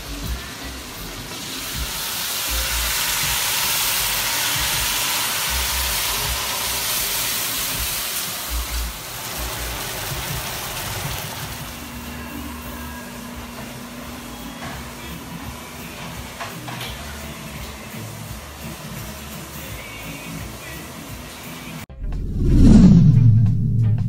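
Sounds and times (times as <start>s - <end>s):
food sizzling in frying pan: 0.0s - 21.8s
low bumps: 21.9s - 24.0s.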